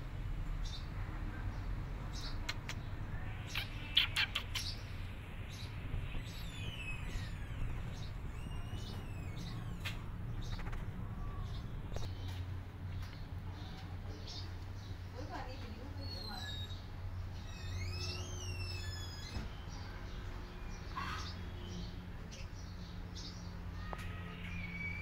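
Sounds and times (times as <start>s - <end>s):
small birds chirping: 0.4s - 25.0s
sharp clicks: 2.4s - 2.8s.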